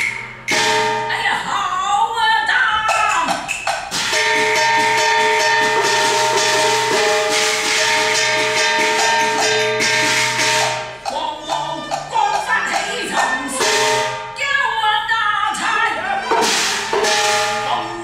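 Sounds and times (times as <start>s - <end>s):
percussion strokes: 0.0s - 1.3s, 2.8s - 14.4s, 16.2s - 18.0s
opera melody: 5.0s - 15.1s, 15.8s - 18.0s.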